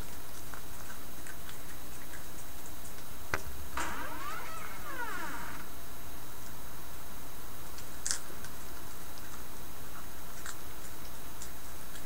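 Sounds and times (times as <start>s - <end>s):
steady hiss: 3.7s - 6.0s
small clicks and ticks: 9.2s - 12.0s.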